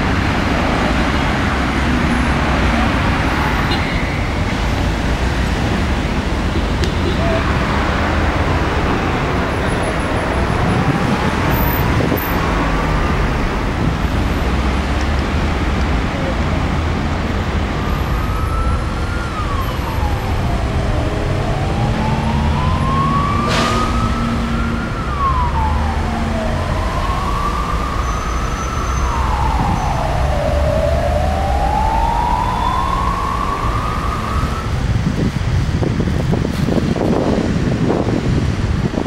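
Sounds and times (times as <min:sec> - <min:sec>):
city traffic rumble: 0:00.0 - 0:39.0
emergency siren wailing: 0:05.4 - 0:16.5, 0:17.3 - 0:35.0.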